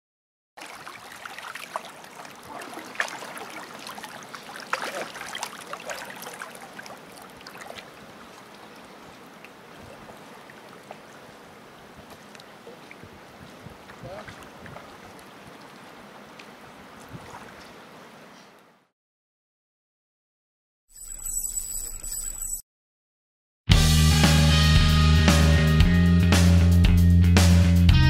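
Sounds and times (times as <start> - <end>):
fish splashing water: 0.6 - 13.2.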